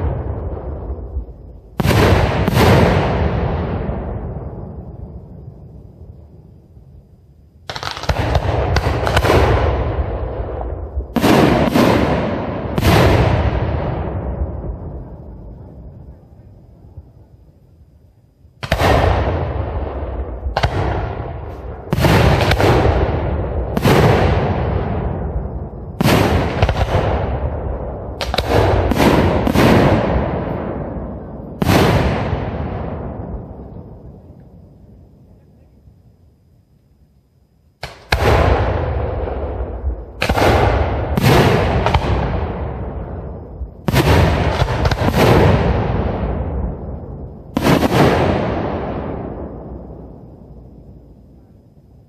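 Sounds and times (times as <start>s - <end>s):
firework shells bursting: 7.7s - 9.8s.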